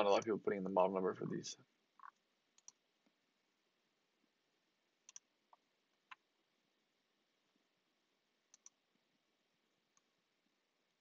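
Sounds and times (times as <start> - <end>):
computer mouse clicks: 2.0 - 3.2, 5.0 - 6.2, 8.5 - 8.8.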